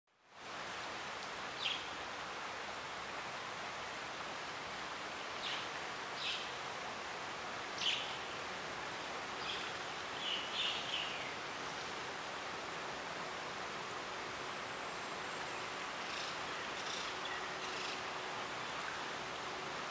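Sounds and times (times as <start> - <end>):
outdoor hiss: 0.2 - 19.9
songbirds chirping: 4.3 - 19.9.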